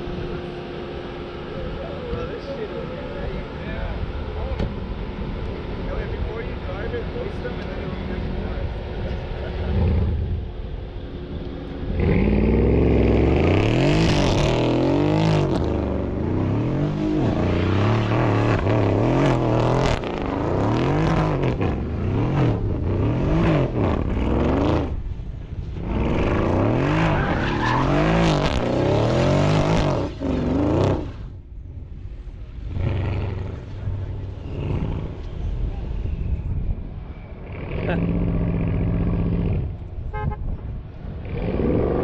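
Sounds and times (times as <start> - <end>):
car engine revving: 0.0 - 31.4, 32.6 - 36.4, 41.0 - 42.0
tyres squealing on asphalt: 25.9 - 31.1.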